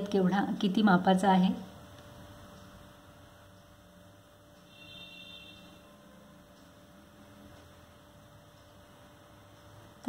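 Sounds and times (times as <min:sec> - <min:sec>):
faint electrical hum: 0:00.0 - 0:10.0
faint high-pitched tone: 0:04.6 - 0:06.7.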